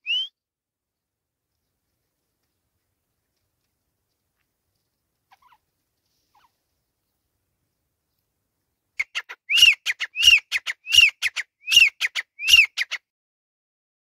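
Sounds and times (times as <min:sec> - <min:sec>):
francolin calling: 0:09.0 - 0:12.9.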